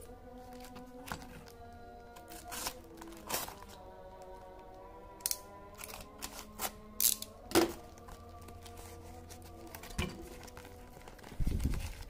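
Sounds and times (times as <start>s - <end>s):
soft background music: 0.0s - 12.0s
cardboard packaging crackling: 2.2s - 4.3s, 5.7s - 12.0s.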